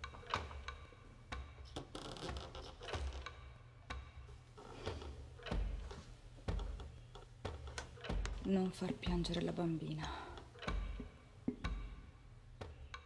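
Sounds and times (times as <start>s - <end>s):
light knocks and bumps: 4.7s - 12.0s.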